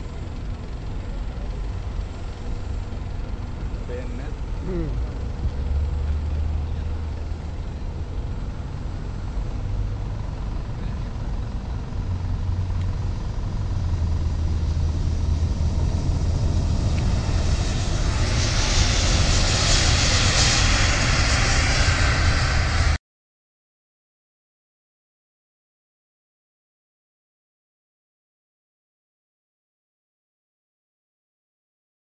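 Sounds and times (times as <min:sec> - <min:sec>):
jet engines rumbling: 0:00.0 - 0:23.0.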